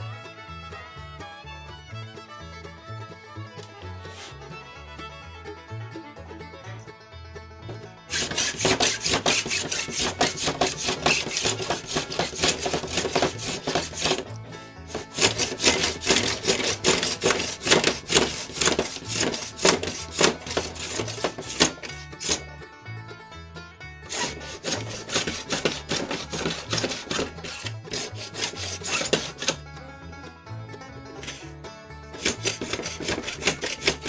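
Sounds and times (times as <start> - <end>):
quiet music: 0.0 - 34.0
block plane scraping wood: 3.6 - 4.4, 7.7 - 22.6, 24.1 - 29.7, 31.2 - 31.5, 32.1 - 34.0.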